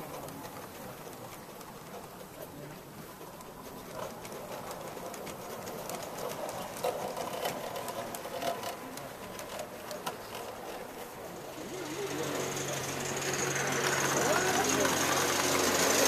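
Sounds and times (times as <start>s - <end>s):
model train wheels rattling: 0.0s - 16.0s.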